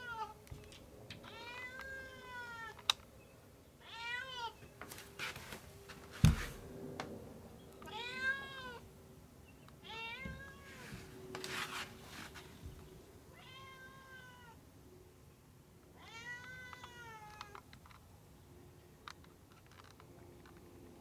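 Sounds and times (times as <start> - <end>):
cat meowing: 1.2 - 2.8, 7.8 - 8.8, 9.8 - 10.9, 13.3 - 14.6, 16.0 - 17.6
scratching noise: 10.7 - 12.6.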